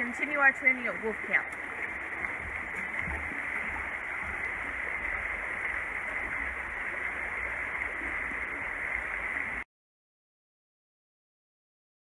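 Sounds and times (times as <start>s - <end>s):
creek rushing: 0.0s - 9.6s
low uneven rumble: 0.0s - 9.6s.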